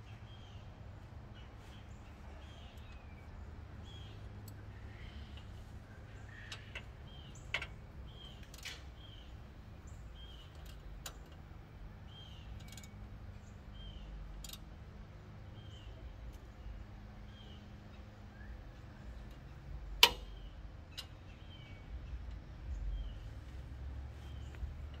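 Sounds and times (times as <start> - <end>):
bird chirping: 0.0 - 25.0
metallic clicks and knocks: 6.5 - 8.9, 12.6 - 13.0, 19.2 - 21.2.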